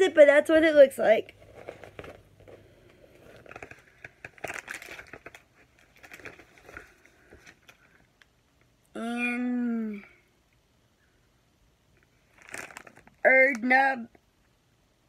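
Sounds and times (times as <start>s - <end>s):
plastic wrappers crinkling: 1.3s - 8.3s, 12.0s - 13.7s
paper rustling: 1.4s - 8.0s.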